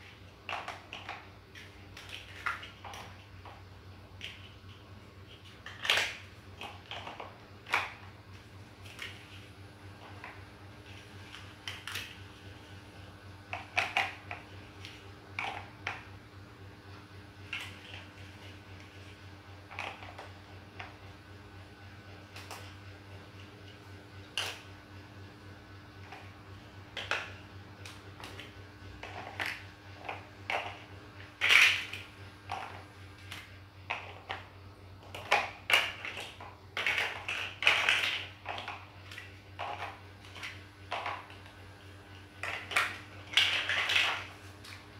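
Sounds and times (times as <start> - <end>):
plastic blocks clicking: 0.4 - 3.6, 4.2 - 8.1, 13.5 - 16.0, 26.9 - 41.5, 42.4 - 44.8.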